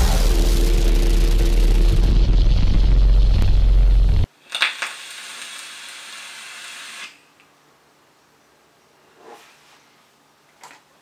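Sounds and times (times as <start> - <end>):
deep rumbling intro sound: 0.0 - 4.3.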